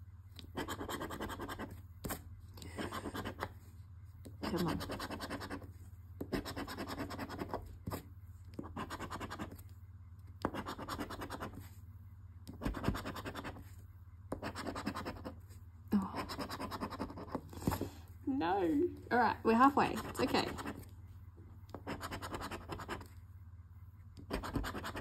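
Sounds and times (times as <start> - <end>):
scratching lottery ticket coating: 19.6 - 20.9, 24.3 - 25.0.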